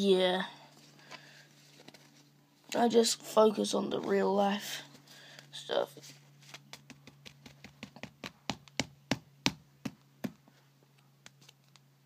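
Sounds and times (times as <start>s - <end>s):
trading cards tapping and clicking: 6.5s - 10.4s.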